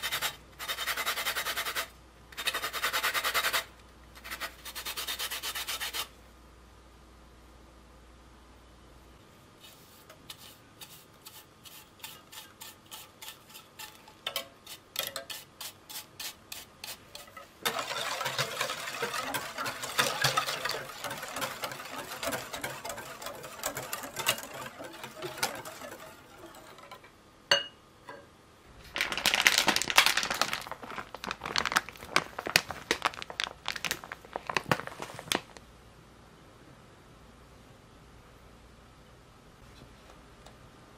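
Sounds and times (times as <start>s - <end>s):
hand grater rasping over peel: 10.3s - 26.6s
wire whisk clinking in glass bowl: 17.7s - 27.7s.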